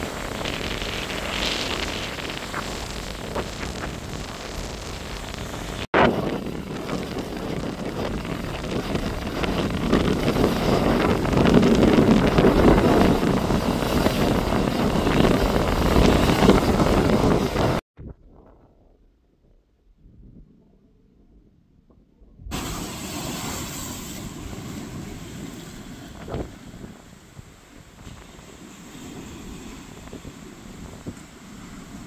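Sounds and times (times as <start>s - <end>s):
surf breaking against seawall: 0.0s - 17.8s
strong wind on microphone: 0.0s - 32.0s.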